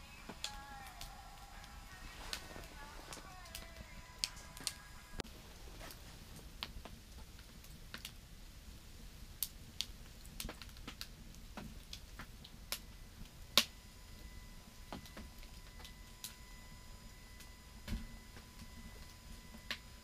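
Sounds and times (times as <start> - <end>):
faint low rumble: 0.0 - 10.5
wood fire crackling: 0.0 - 20.0.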